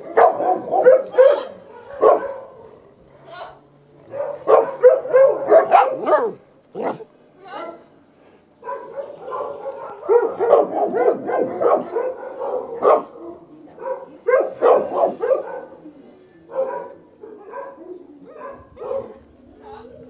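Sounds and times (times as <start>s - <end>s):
puppies barking and yipping: 4.1s - 7.1s, 8.6s - 15.8s, 16.4s - 19.3s.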